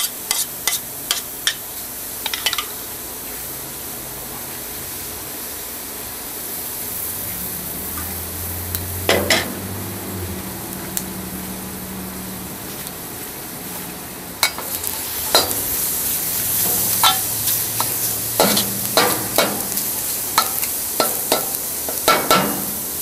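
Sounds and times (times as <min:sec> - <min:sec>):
spatula scraping and clanking wok: 0:00.0 - 0:02.8, 0:09.0 - 0:09.8, 0:13.7 - 0:23.0
chicken sizzling in a wok: 0:00.0 - 0:23.0.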